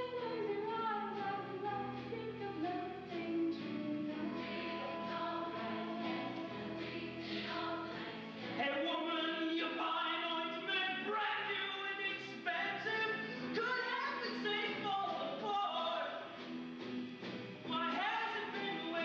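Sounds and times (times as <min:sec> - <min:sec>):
voices singing together: 0:00.0 - 0:16.3, 0:17.7 - 0:19.0.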